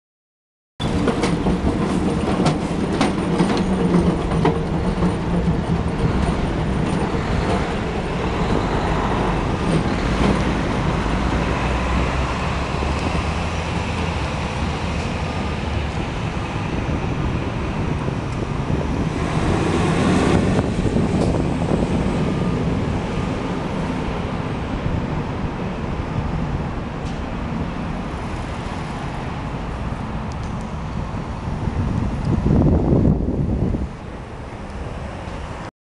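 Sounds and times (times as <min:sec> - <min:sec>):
tram wheels clicking over track: 0:00.8 - 0:28.4
street traffic noise: 0:00.8 - 0:35.7
tram rumbling along rails: 0:00.8 - 0:35.7.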